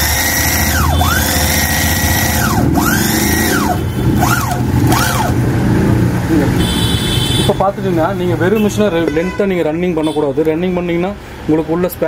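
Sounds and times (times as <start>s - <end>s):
electric motor whining: 0.0s - 5.4s
low hum of stitching mechanism: 0.0s - 5.4s.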